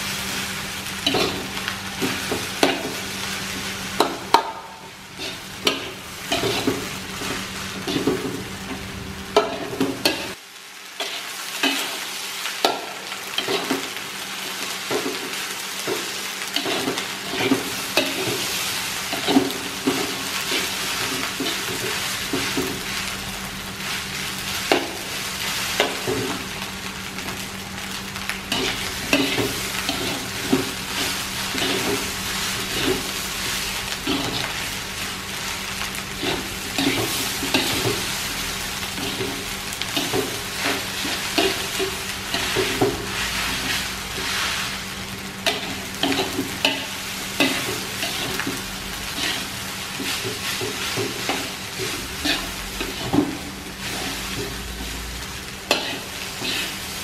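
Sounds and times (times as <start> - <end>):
fried rice sizzling in a wok: 0.0 - 57.0
metal spatula scraping pan: 55.7 - 56.8.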